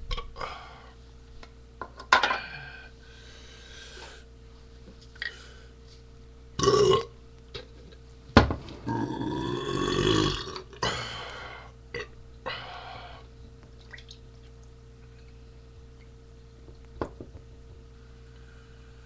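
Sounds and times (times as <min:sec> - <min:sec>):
man belching: 0:06.6 - 0:07.2, 0:08.8 - 0:11.0.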